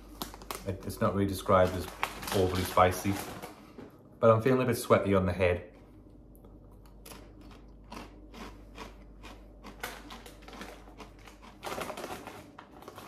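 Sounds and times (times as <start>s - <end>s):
chewing crunchy tortilla chip: 6.4s - 13.0s.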